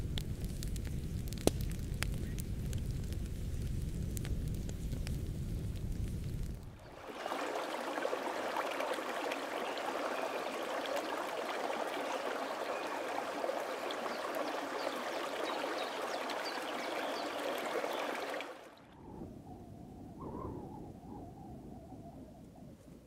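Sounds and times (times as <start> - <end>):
stream flowing: 6.8 - 19.0.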